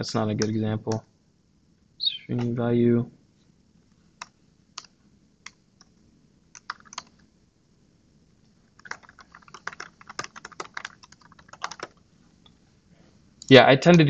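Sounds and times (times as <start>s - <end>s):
typing on computer keyboard: 6.5s - 7.2s, 8.8s - 12.0s.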